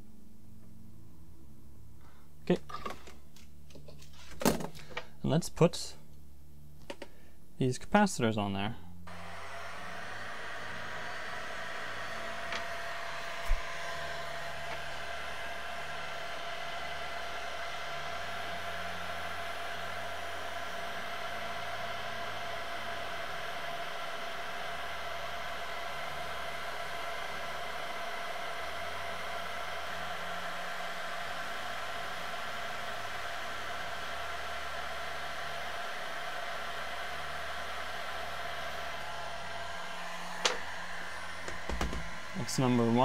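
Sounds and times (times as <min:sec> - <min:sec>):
workshop equipment whirring: 0:09.1 - 0:43.0.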